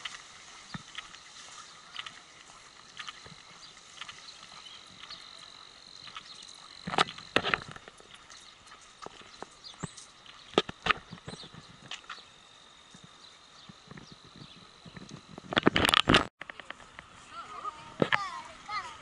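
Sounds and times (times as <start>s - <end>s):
clopping steps on hard surface: 0.0s - 12.3s.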